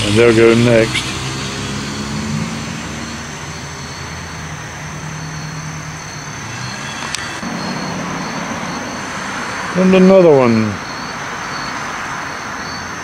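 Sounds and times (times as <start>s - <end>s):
traffic noise: 0.0s - 13.0s
vehicle engine humming: 0.0s - 13.0s
thin high trills: 6.3s - 11.3s.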